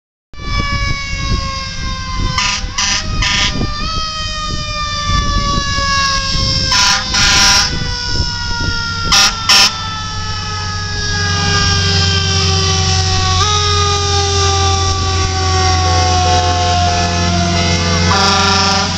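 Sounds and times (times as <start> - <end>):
siren wailing: 0.4 - 18.9
truck engine rumble: 0.4 - 18.9
air horn blasts: 2.2 - 3.8, 5.4 - 7.9, 9.0 - 9.9, 10.5 - 18.9.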